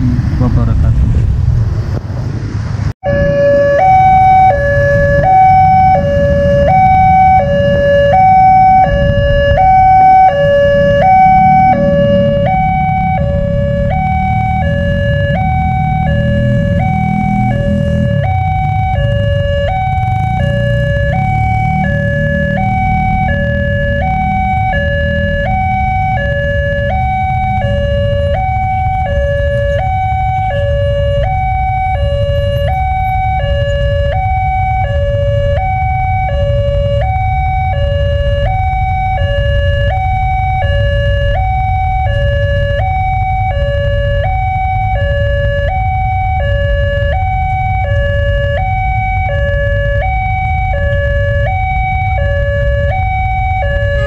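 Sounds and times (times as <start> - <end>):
low rumble: 0.0 - 26.2
level crossing two-tone alarm: 3.1 - 54.0.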